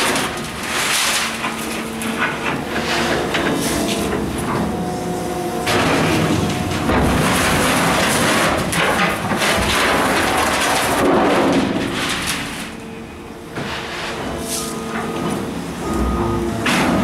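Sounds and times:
bucket scraping steel floor: 0:00.0 - 0:04.7, 0:05.7 - 0:12.9, 0:13.5 - 0:15.3
excavator engine: 0:00.0 - 0:17.0.

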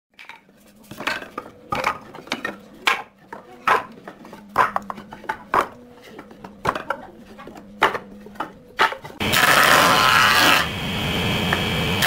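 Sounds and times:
wooden boards knocking on concrete: 0:00.2 - 0:09.2.

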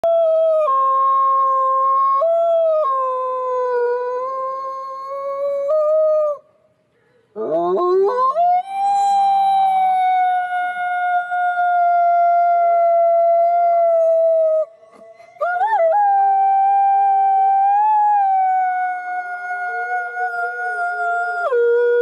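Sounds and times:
wolf howling: 0:07.4 - 0:22.0.

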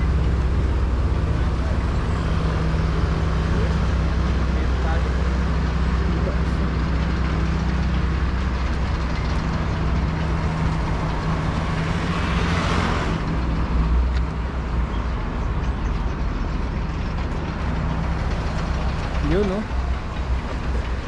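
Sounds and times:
idling vehicle engines hum: 0:00.0 - 0:21.0
passing vehicle rushing: 0:08.3 - 0:15.4.

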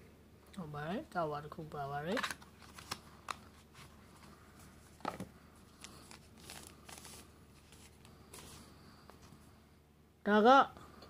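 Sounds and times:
packaging rustling and crinkling: 0:02.2 - 0:08.6.

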